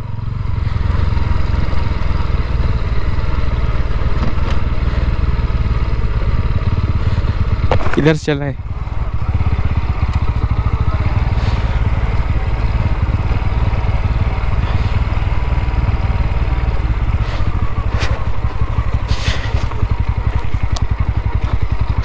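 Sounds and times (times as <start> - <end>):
motorcycle engine running: 0.0 - 22.0
clatters and scrapes: 17.2 - 21.6.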